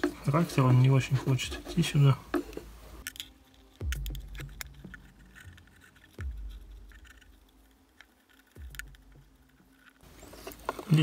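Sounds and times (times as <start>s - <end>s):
dull low bumps: 3.8s - 7.7s, 8.5s - 10.8s.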